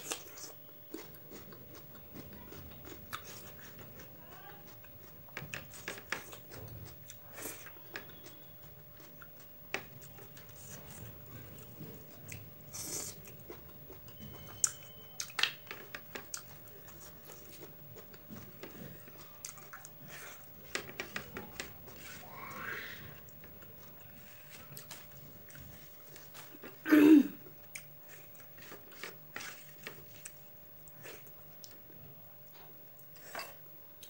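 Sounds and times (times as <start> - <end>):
chewing with crisp crunches: 0.0 - 26.8, 27.4 - 34.0.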